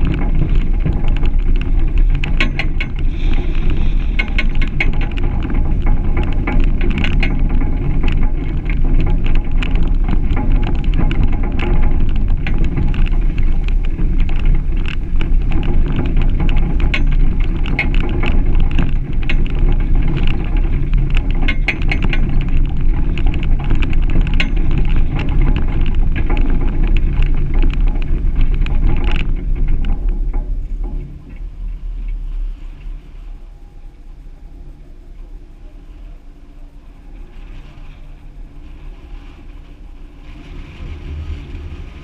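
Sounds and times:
tyres rumbling on gravel: 0:00.0 - 0:31.6, 0:37.7 - 0:42.0.

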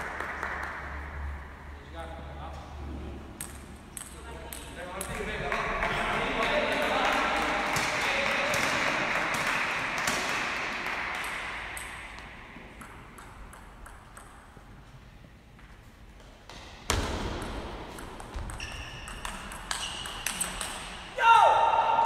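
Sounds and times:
table tennis ball hitting paddles: 0:03.3 - 0:06.1, 0:06.8 - 0:14.6, 0:16.2 - 0:21.1.

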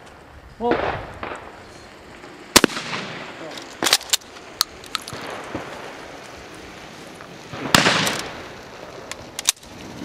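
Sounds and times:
shotgun shot echoing: 0:02.5 - 0:04.0, 0:07.5 - 0:08.3.

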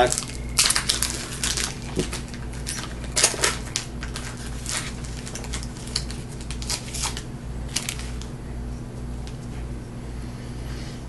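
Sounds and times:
foil wrapper crinkling: 0:00.0 - 0:08.3.

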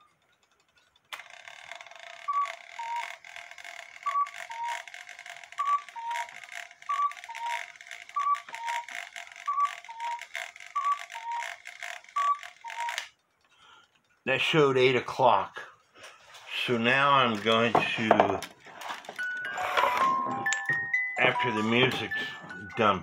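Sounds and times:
clock movement whirring and clicking: 0:00.0 - 0:23.0
cuckoo clock two-note call: 0:02.2 - 0:13.1, 0:19.2 - 0:23.0.

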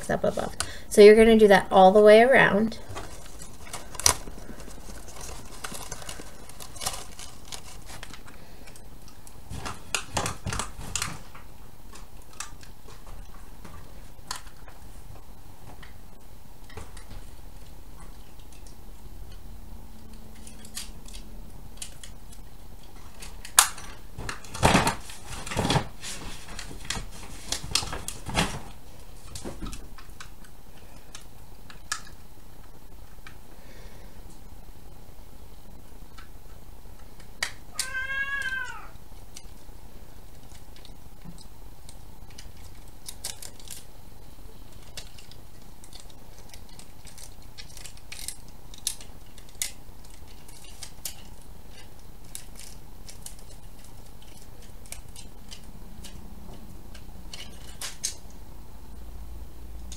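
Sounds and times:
steady background hiss: 0:00.0 - 0:59.9
paper rustling: 0:02.8 - 0:08.8, 0:09.5 - 0:15.9, 0:23.0 - 0:29.9.

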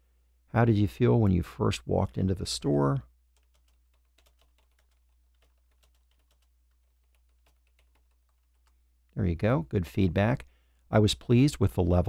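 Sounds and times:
typing on a computer keyboard: 0:03.3 - 0:08.8.

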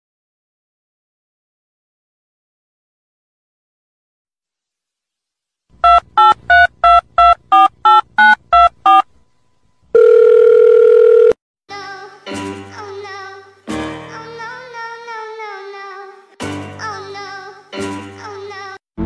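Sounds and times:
steady telephone tone: 0:05.8 - 0:09.0, 0:10.0 - 0:11.4
telephone keypad beeps: 0:05.8 - 0:09.0, 0:10.0 - 0:11.4
music with singing: 0:11.7 - 0:18.8.

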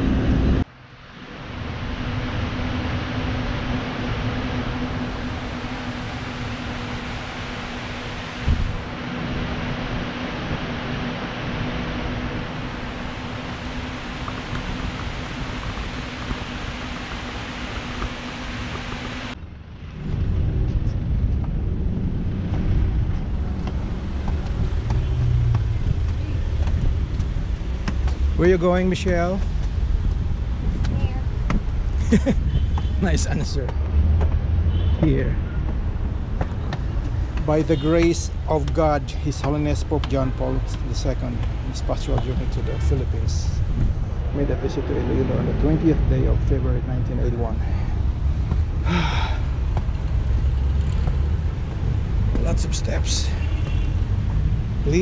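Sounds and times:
electric fans running: 0:00.0 - 0:19.4
low outdoor rumble: 0:00.0 - 0:55.0
footsteps on stone steps: 0:22.4 - 0:28.4, 0:33.6 - 0:40.8.

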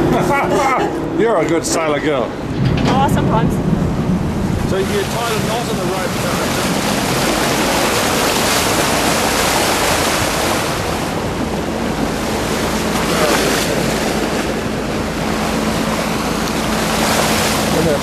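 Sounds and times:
water splashing along boat bow: 0:00.0 - 0:18.0
wind buffeting microphone: 0:00.0 - 0:18.0.

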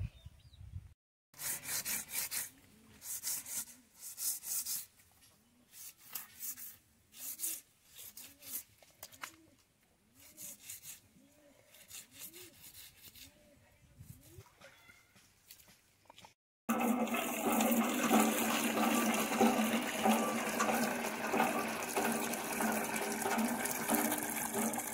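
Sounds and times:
knife scraping on concrete: 0:05.7 - 0:09.2, 0:10.2 - 0:11.0, 0:11.7 - 0:13.4.

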